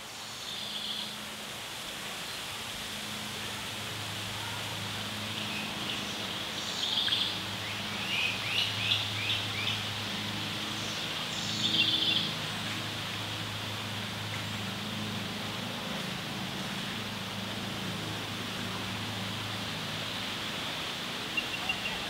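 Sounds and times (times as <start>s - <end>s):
constant hiss: 0.0s - 22.0s
bird calls: 21.4s - 22.0s.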